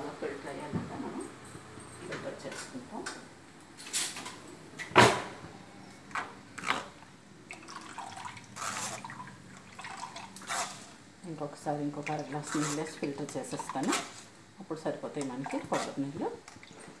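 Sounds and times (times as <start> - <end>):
liquid trickling into a bowl: 7.5 - 10.8
spoon scraping a strainer: 8.6 - 9.1, 10.4 - 11.0, 12.2 - 14.3.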